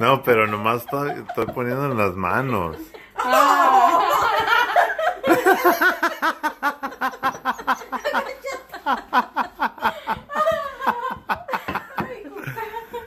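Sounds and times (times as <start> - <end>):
person speaking: 0.0 - 3.9
person laughing hard: 0.4 - 13.0.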